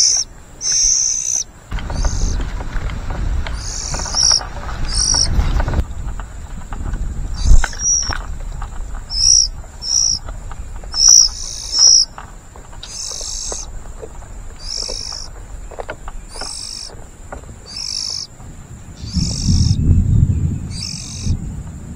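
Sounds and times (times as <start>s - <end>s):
bird nestlings begging calls: 0.0s - 2.7s, 3.5s - 5.9s, 7.3s - 8.4s, 9.0s - 20.1s, 20.7s - 21.4s
low rumble: 18.4s - 21.9s.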